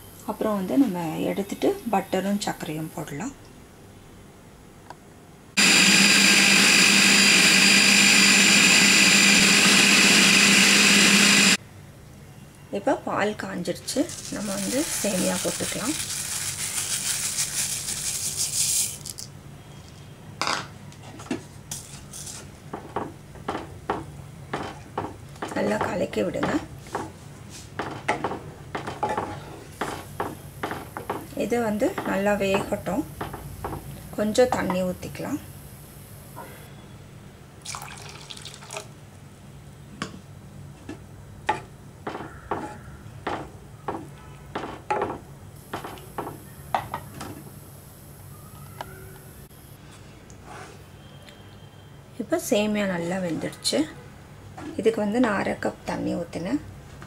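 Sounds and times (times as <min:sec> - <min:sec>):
dry noodles rustling into pan: 0:13.9 - 0:19.2.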